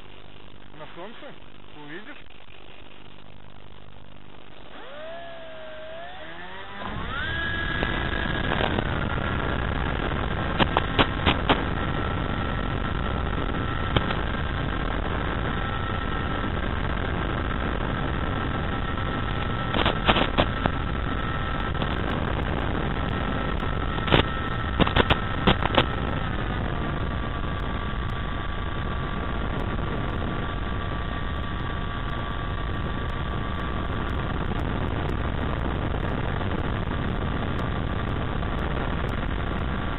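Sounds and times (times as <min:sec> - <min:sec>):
electric motor whining: 0:03.9 - 0:28.6
sharp clicks: 0:10.5 - 0:11.7, 0:13.9 - 0:14.3, 0:23.6 - 0:26.0.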